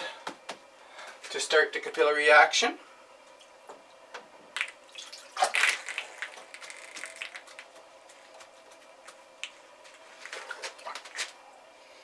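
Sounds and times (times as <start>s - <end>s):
water splashing onto a mat: 4.6s - 7.6s.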